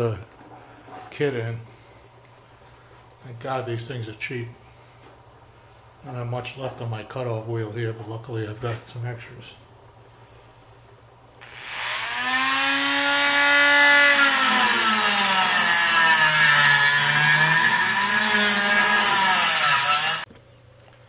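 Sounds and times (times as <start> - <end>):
rotary tool cutting metal: 11.4 - 20.3.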